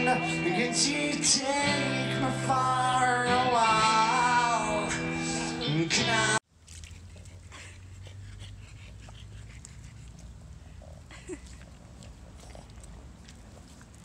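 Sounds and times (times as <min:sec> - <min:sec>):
dog splashing in puddle: 0:06.5 - 0:07.5, 0:11.4 - 0:14.0
dog low vocal sound: 0:06.9 - 0:14.0.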